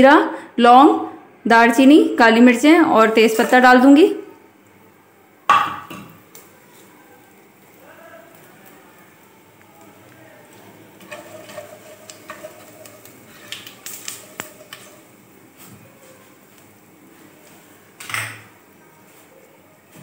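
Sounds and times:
spices sizzling in hot oil: 3.0s - 20.0s
spatula scraping and clicking on pot: 11.0s - 15.1s.

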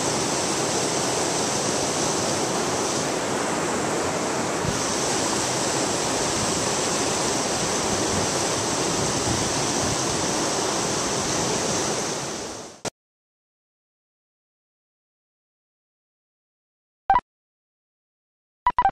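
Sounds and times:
river rushing over rocks: 0.0s - 12.8s.

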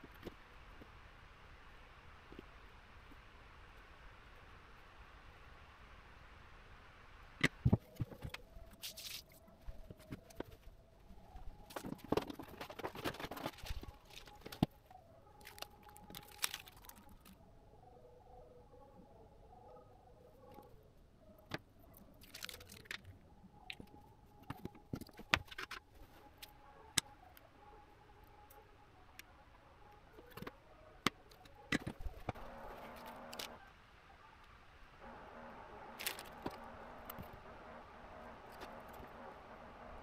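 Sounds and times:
soft rustle: 7.8s - 10.8s.

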